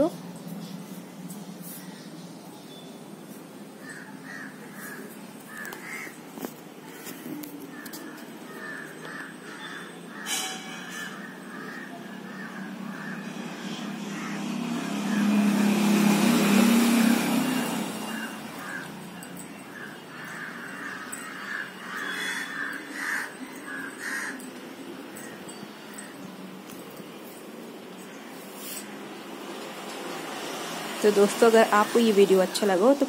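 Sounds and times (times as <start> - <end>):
birds calling: 0.4 - 32.7
vehicle rumbling past: 9.4 - 33.0.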